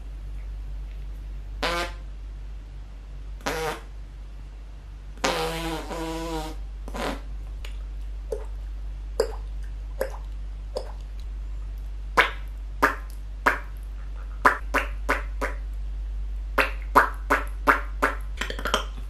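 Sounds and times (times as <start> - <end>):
raspberry fart noises on forearm: 1.6 - 2.0, 3.4 - 3.9, 5.2 - 7.3
mouth pops imitating water drops: 6.9 - 8.6, 9.2 - 11.2, 12.2 - 15.6, 16.6 - 19.0.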